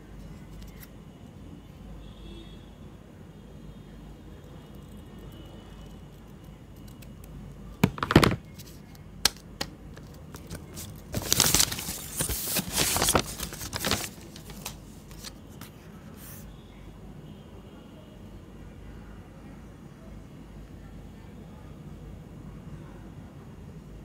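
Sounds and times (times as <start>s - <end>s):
paper tearing and crinkling: 10.4s - 15.4s.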